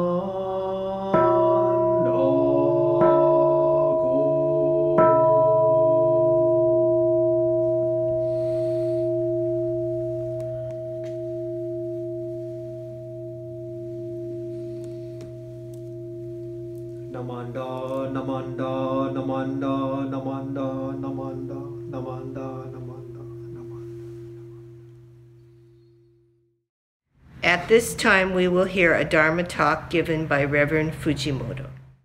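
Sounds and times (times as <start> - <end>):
man chanting: 0.0 - 5.4, 17.0 - 24.9
bowl bell ringing: 1.2 - 26.6.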